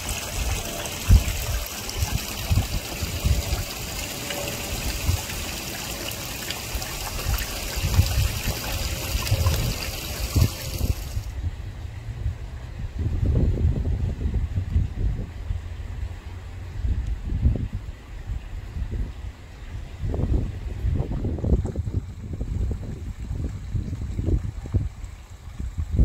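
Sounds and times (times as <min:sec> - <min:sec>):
pond water trickling: 0:00.0 - 0:11.4, 0:17.9 - 0:26.0
wind on microphone: 0:00.0 - 0:26.0.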